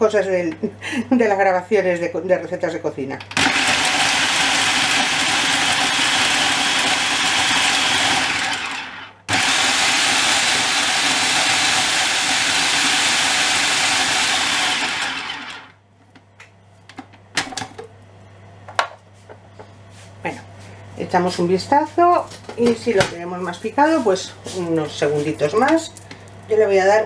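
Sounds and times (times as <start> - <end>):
food processor whirring: 3.3 - 15.8.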